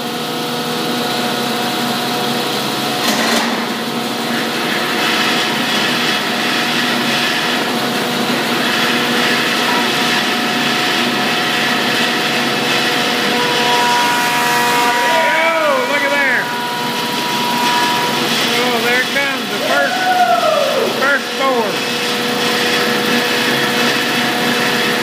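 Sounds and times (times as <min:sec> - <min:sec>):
wood planer running: 0:00.0 - 0:25.0.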